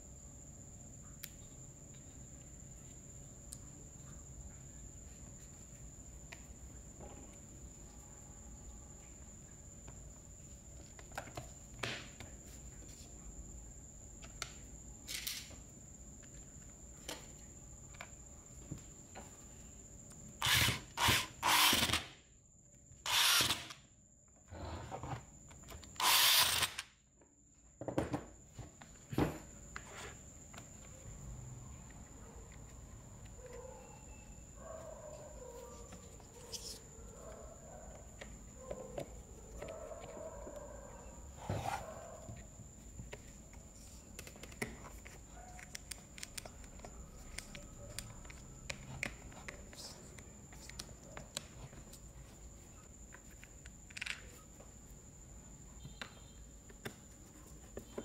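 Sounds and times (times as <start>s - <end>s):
electric screwdriver running: 20.4s - 22.1s, 23.1s - 23.8s, 26.0s - 26.8s.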